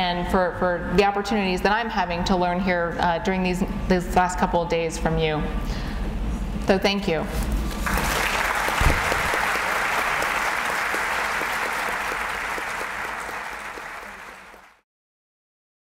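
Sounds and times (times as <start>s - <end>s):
audience applauding: 7.8s - 14.8s
low thump: 8.8s - 9.3s.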